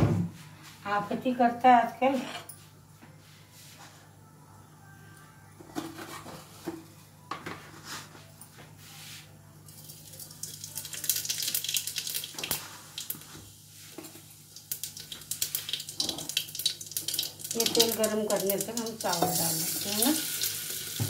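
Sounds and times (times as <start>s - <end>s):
hot oil crackling and sizzling: 9.8s - 21.0s.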